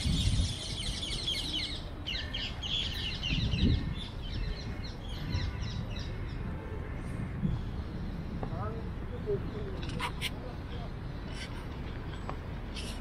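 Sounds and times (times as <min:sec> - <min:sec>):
small birds chirping: 0:00.0 - 0:06.4.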